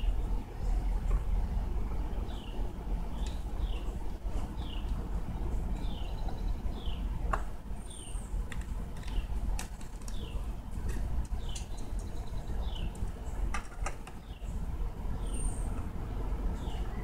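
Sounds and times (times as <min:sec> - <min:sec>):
steady low rumble: 0:00.0 - 0:17.0
bird chirping: 0:02.1 - 0:07.2, 0:07.8 - 0:08.4, 0:11.2 - 0:17.0.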